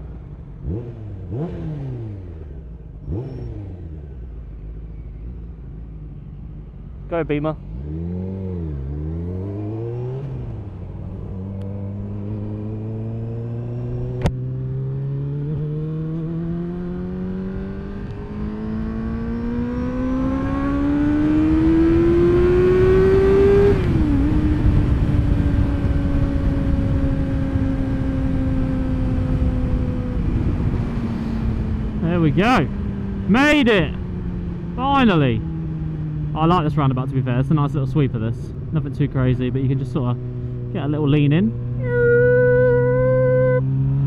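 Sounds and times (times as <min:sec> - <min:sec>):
motorcycle engine accelerating: 0:00.0 - 0:44.0
wind noise: 0:20.0 - 0:32.0.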